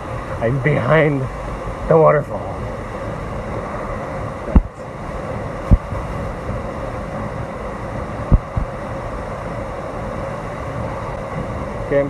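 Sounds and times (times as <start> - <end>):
low thumps on microphone: 4.5 - 4.8, 5.6 - 6.1, 8.3 - 8.7.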